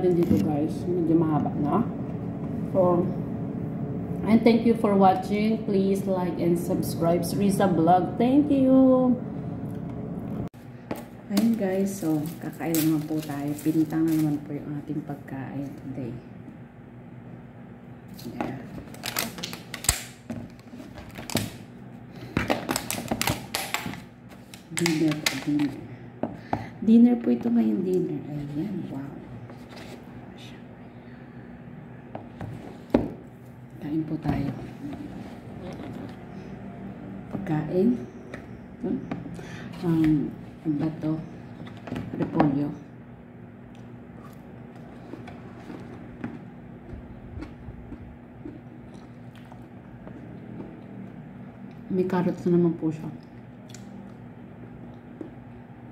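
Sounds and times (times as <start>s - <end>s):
steady low hum: 0.0s - 55.9s
food packaging crackling: 11.3s - 14.5s, 18.8s - 21.6s.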